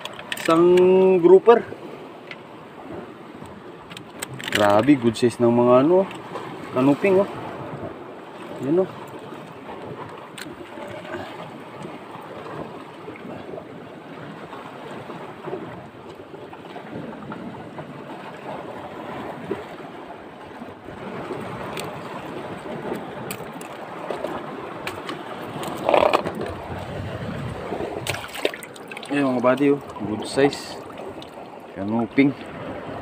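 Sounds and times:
surf washing over rocks: 0.0 - 33.0
wind on microphone: 16.7 - 33.0.

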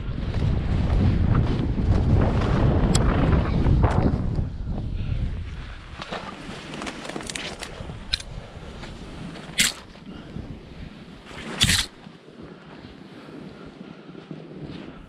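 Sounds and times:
wind on microphone: 0.0 - 15.0
skis hissing through powder snow: 11.0 - 13.6.

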